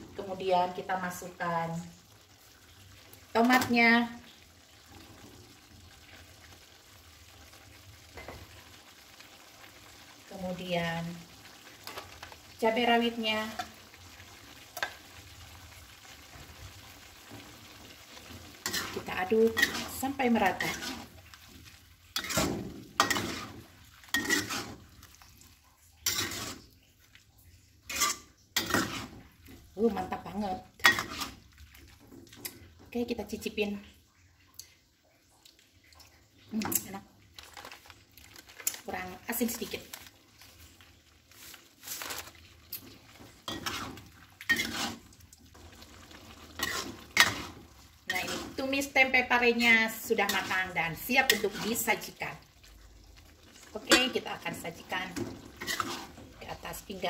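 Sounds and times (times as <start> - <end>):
spatula scraping a wok: 18.2 - 24.9, 26.0 - 26.7, 27.9 - 29.4, 30.8 - 31.5, 41.3 - 52.2, 53.8 - 56.9.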